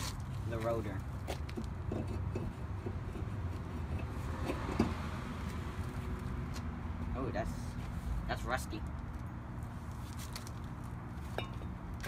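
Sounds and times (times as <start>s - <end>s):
brake rotor metallic scrape and clunk: 0.0s - 6.3s.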